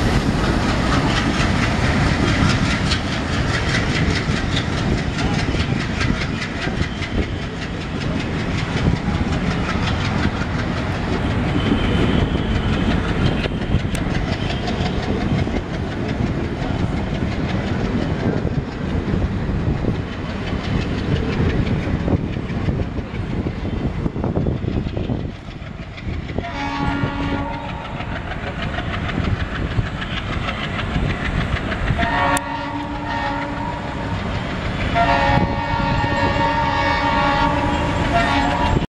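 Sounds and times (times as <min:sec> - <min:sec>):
train wheels clattering over rail joints: 0:00.0 - 0:38.9
diesel locomotive horn: 0:11.2 - 0:15.0, 0:26.4 - 0:28.2, 0:32.0 - 0:34.3, 0:34.9 - 0:38.9.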